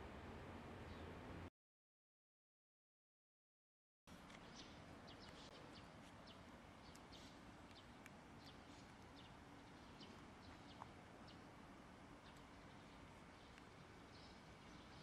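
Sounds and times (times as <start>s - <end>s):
birds chirping faintly: 4.1s - 15.0s
faint steady low hum: 4.1s - 15.0s.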